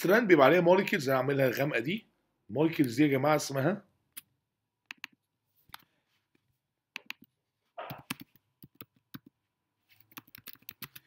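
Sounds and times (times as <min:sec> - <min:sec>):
keyboard and mouse clicks: 0:04.1 - 0:05.9, 0:06.9 - 0:09.4, 0:10.0 - 0:11.0.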